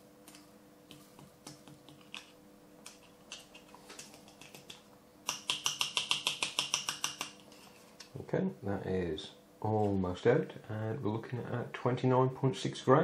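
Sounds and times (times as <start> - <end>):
fingers tapping plastic cartridge: 4.0 - 7.5.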